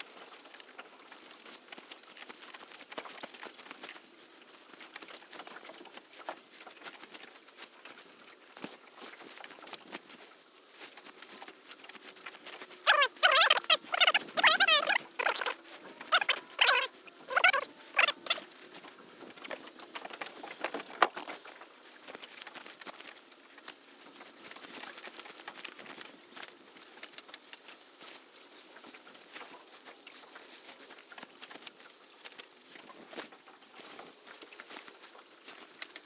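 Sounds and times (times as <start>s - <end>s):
net mesh rustling: 0.0s - 36.0s
wavering pitched cries: 12.8s - 18.4s.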